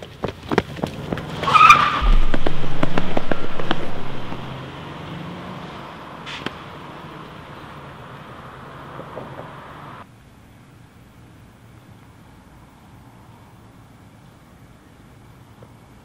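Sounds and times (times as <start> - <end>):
tyre squeal: 1.3 - 4.1.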